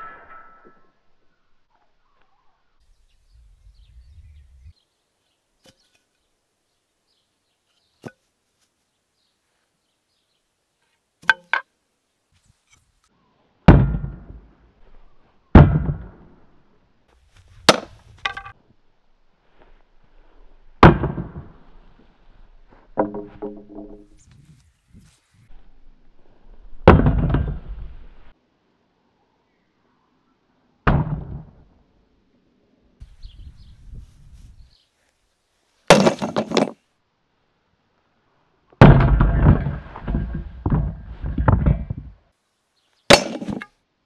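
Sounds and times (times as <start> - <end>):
ringing metal clangs: 0.0 - 1.1
axe thuds on wooden shield: 13.7 - 14.3, 15.6 - 16.2, 17.7 - 18.5, 35.9 - 36.7, 43.1 - 43.7.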